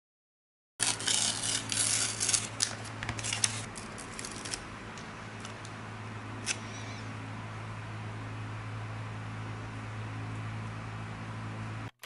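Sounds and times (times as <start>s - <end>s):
stickers rustling and peeling: 0.8s - 5.7s
faint steady hum: 0.8s - 11.9s.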